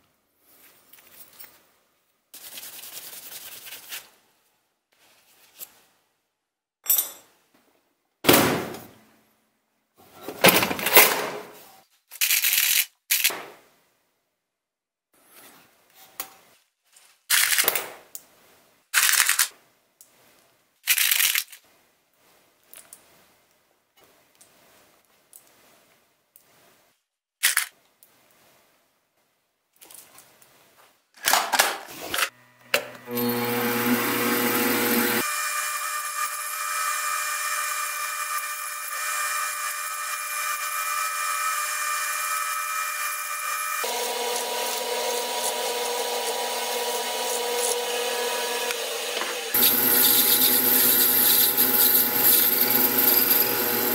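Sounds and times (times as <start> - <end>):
metal parts rattling in a drawer: 12.1 - 13.3, 19.0 - 19.5, 20.9 - 21.6
metal lathe whining: 33.0 - 53.9.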